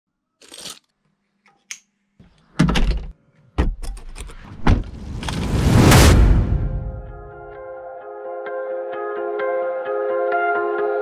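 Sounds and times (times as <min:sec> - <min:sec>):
car door opening and shutting: 0:03.6 - 0:05.5
rising noise: 0:04.4 - 0:07.6.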